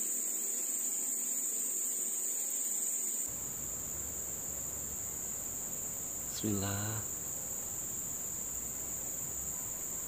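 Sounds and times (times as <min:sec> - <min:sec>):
insects droning: 0:00.0 - 0:10.0.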